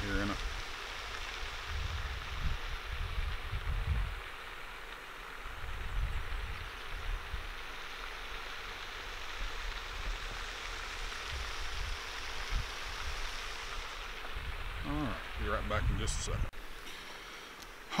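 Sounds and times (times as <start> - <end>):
fountain spraying water: 0.0 - 18.0
wind on microphone: 1.3 - 4.3, 5.5 - 7.5, 9.8 - 16.5.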